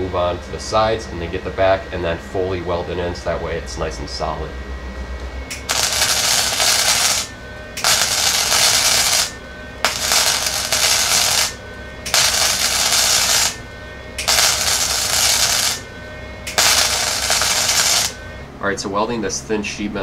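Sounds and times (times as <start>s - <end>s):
welding arc crackling: 5.5s - 18.4s.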